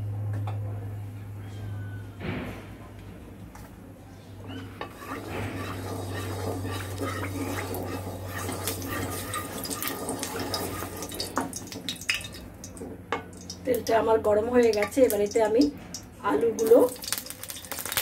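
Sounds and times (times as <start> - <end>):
wooden spatula scraping pan: 4.5 - 11.4
oil sizzling in pan: 4.9 - 18.0.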